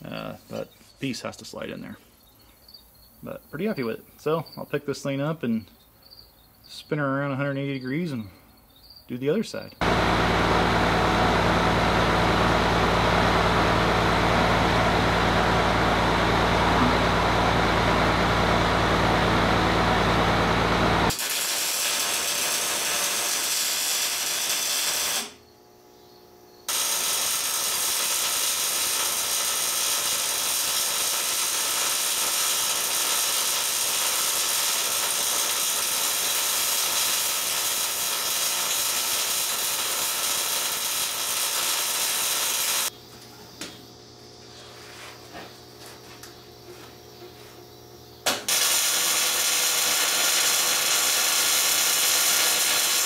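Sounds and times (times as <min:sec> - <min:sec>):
truck engine running: 0:09.8 - 0:21.1
welding arc crackling hiss: 0:20.0 - 0:25.4, 0:26.7 - 0:42.9, 0:48.3 - 0:53.0.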